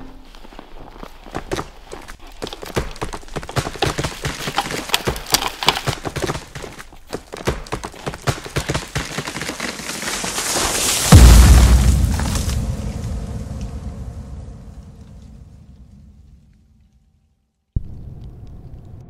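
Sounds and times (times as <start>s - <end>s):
footsteps crunching through snow: 0.0s - 13.2s.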